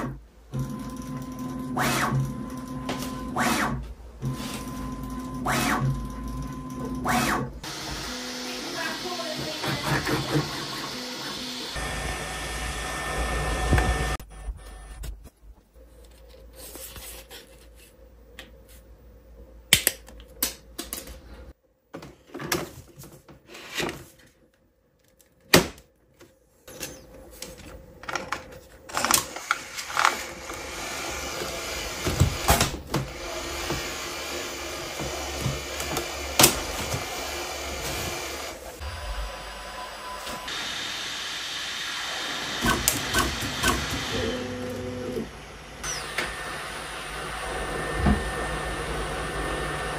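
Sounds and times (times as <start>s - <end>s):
printer motors running: 0.6s - 15.0s, 42.1s - 49.9s.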